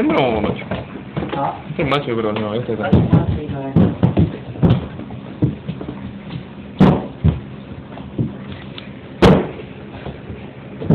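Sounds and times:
knocks and bumps: 2.8 - 8.4, 9.2 - 10.9
loud sharp thump: 6.8 - 7.4, 9.2 - 9.6.

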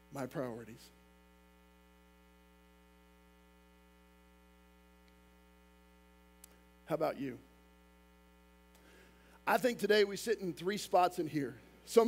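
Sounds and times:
faint electrical mains hum: 0.0 - 12.0
small click: 5.0 - 5.2.

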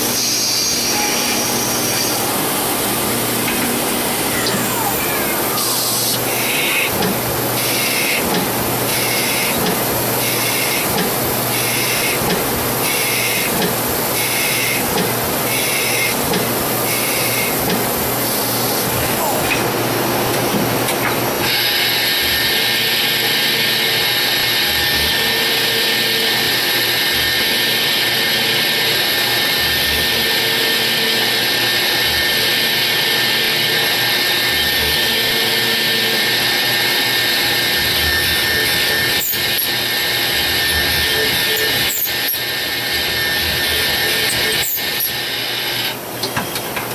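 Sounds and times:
machine whine: 0.0 - 46.9.

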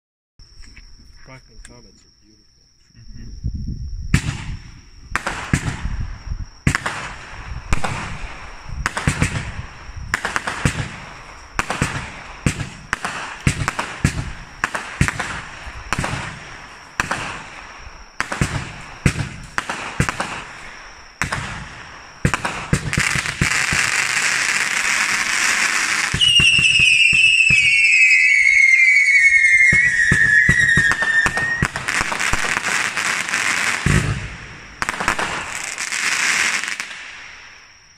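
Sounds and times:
firework launch thumps and bursts: 4.1 - 6.0, 6.6 - 27.8, 29.6 - 37.6
falling firework whistles: 4.1 - 37.9
fireworks crackling: 5.2 - 5.9, 6.7 - 37.7.

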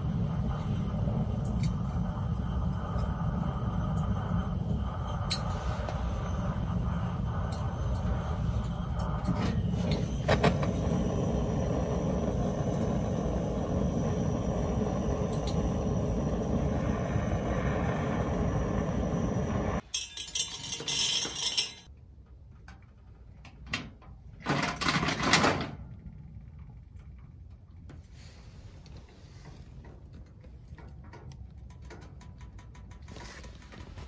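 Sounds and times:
sharp pops of fire: 0.0 - 19.8
torch clicks: 0.0 - 19.8
torch flame rushing: 0.0 - 19.8
fire crackling in stove: 0.0 - 23.0, 24.4 - 34.0.

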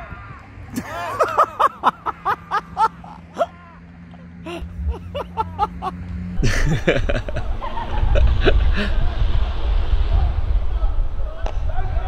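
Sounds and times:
players shouting: 0.0 - 6.0
low rumble: 4.6 - 11.8.

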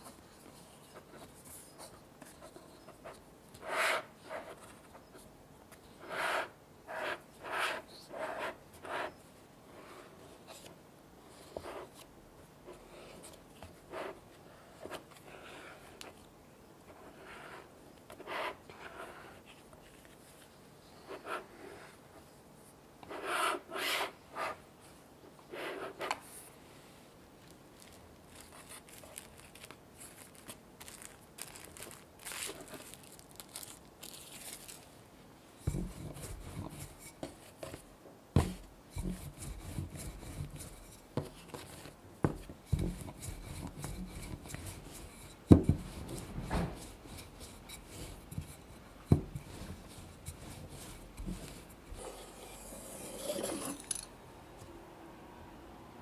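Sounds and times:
cling film rustling: 27.5 - 35.0
rolling pin on wooden board: 35.6 - 54.0
bench scraper scraping dough: 38.4 - 41.3, 42.2 - 54.0.

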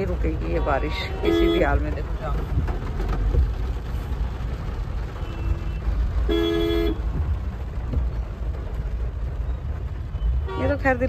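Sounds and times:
low rumble of engine and road: 0.0 - 11.0
car horns honking: 0.6 - 1.8, 5.2 - 7.1.

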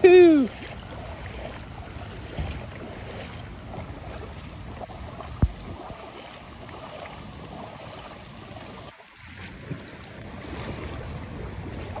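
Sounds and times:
water sloshing around a kayak: 0.0 - 12.0
wind buffeting microphone: 0.8 - 8.9.

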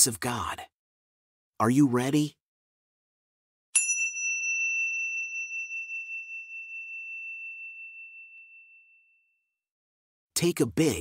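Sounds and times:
meditation chime ringing: 3.8 - 9.5.

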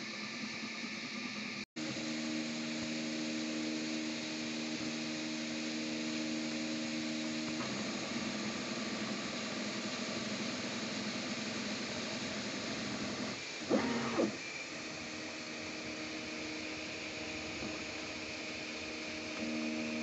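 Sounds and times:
stepper motors whining: 12.6 - 20.0.

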